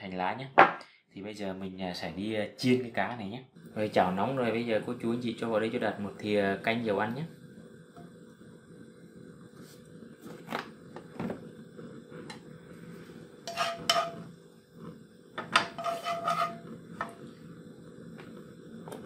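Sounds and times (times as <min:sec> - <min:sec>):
utensils knocking: 0:15.4 - 0:17.2.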